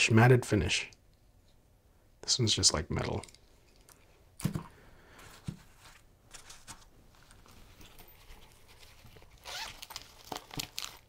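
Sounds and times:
case rustling: 0:05.3 - 0:11.0.

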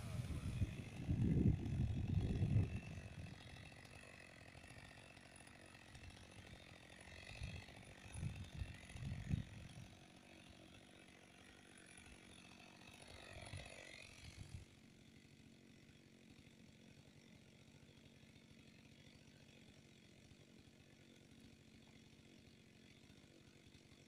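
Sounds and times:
faint chainsaw engine running: 0:00.0 - 0:24.0.

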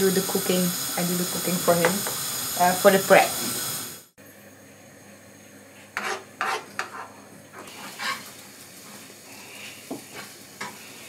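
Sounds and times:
eggs sizzling: 0:00.0 - 0:04.2, 0:05.8 - 0:11.0
metal spoon scraping a pan: 0:06.0 - 0:08.4.

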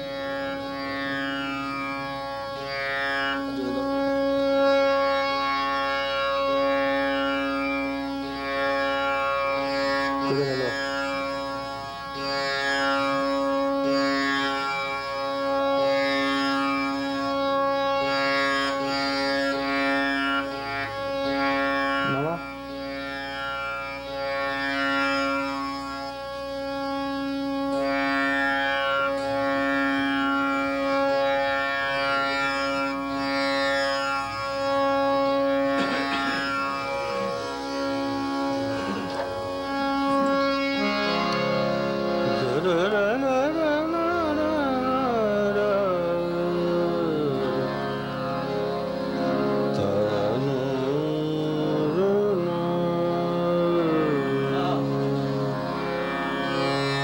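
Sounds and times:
tanpura drone: 0:00.0 - 0:57.0
strummed string flourishes: 0:33.3 - 0:43.8
man singing ornamented melody: 0:38.5 - 0:48.6, 0:49.7 - 0:56.2.

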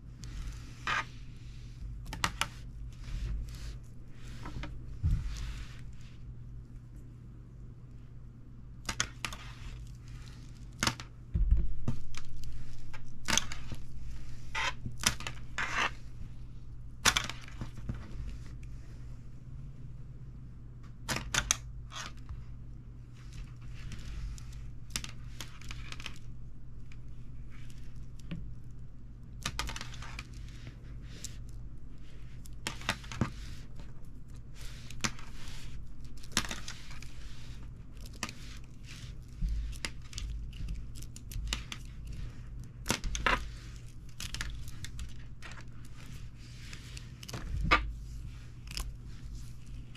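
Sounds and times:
steady low hum: 0:00.0 - 0:49.9
low thud: 0:11.3 - 0:11.9.

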